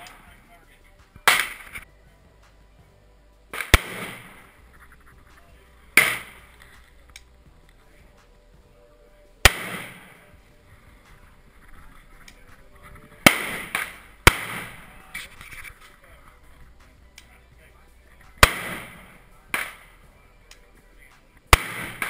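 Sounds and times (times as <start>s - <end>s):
rifle shots with echo: 1.2s - 1.8s, 3.5s - 4.6s, 5.9s - 6.9s, 9.4s - 15.2s, 18.4s - 20.0s, 21.5s - 22.0s.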